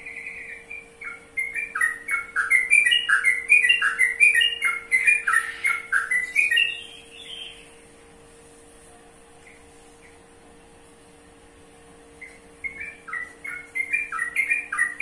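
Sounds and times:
bird whistling notes: 0.0 - 7.8, 12.2 - 15.0.

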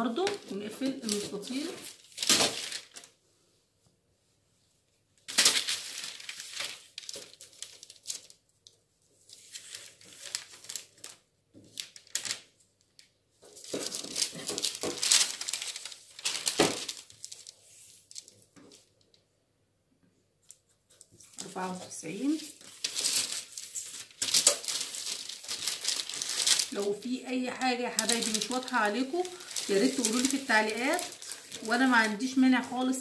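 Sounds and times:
paper rustling and crinkling: 0.0 - 3.2, 5.2 - 19.2, 20.4 - 33.0.

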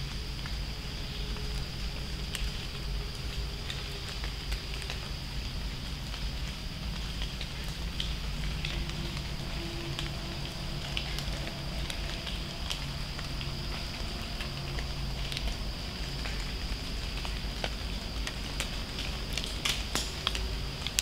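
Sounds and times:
steady high-pitched drone: 7.4 - 18.0.

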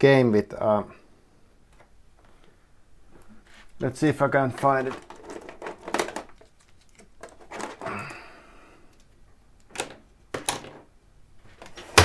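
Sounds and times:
objects knocking and clicking: 4.5 - 8.2.

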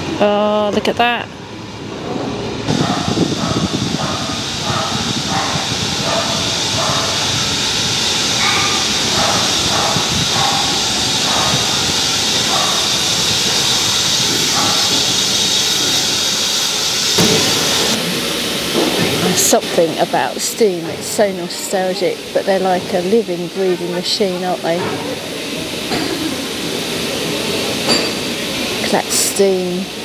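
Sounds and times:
steam locomotive hissing steam: 1.5 - 30.0.

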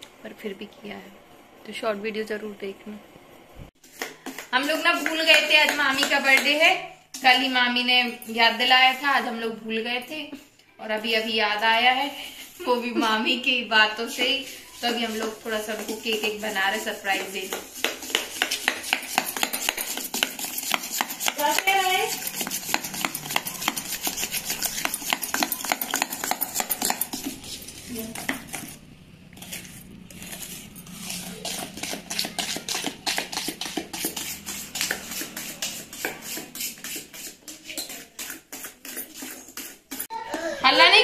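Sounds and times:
metal spoon clinking in metal bowl: 21.4 - 27.4.

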